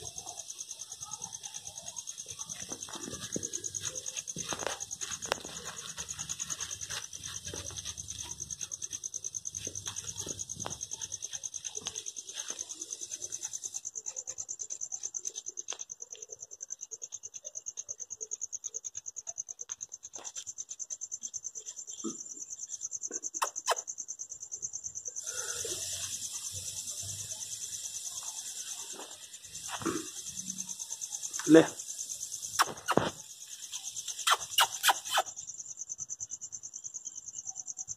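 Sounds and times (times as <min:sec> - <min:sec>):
crickets trilling: 0:00.0 - 0:37.9
soft rustles: 0:02.4 - 0:13.5.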